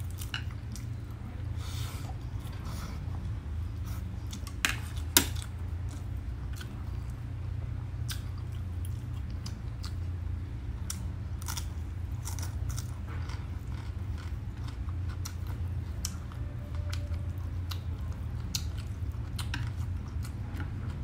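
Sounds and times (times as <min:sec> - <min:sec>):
low hum: 0:00.0 - 0:21.0
person chewing crunchy food: 0:10.8 - 0:21.0.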